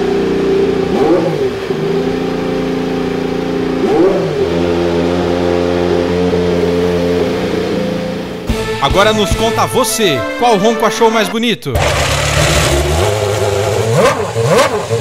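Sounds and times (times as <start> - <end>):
racing car engine revving: 0.0 - 8.5, 11.7 - 15.0.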